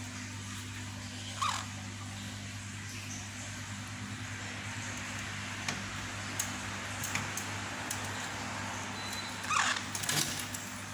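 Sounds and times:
parrot squawking: 1.3s - 1.8s, 9.5s - 9.9s.

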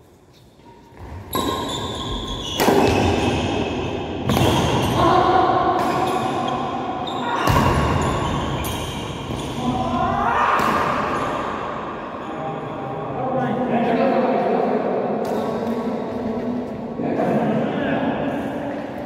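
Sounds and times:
rackets hitting shuttlecock: 1.0s - 5.0s, 5.7s - 6.5s.

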